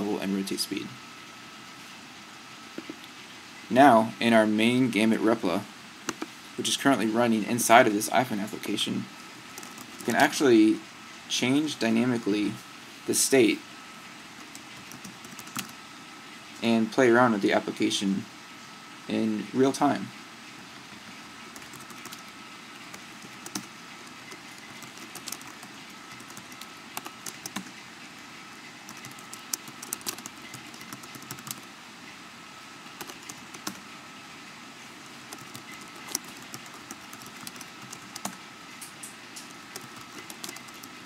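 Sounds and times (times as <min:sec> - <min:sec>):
steady background hiss: 0:00.0 - 0:41.0
computer keyboard typing: 0:09.5 - 0:10.2, 0:14.4 - 0:15.8, 0:21.5 - 0:27.8, 0:28.9 - 0:31.7, 0:32.9 - 0:33.8, 0:35.3 - 0:38.4, 0:39.4 - 0:41.0.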